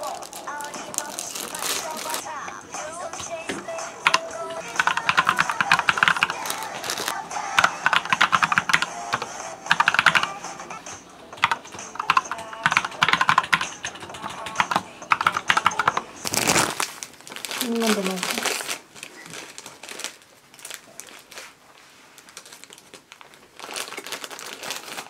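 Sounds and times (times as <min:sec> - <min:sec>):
keyboard typing: 0:00.0 - 0:16.8.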